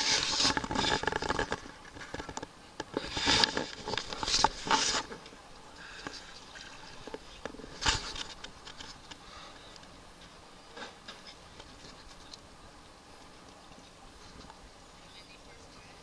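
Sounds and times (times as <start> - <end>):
water splashing: 0.0 - 9.1.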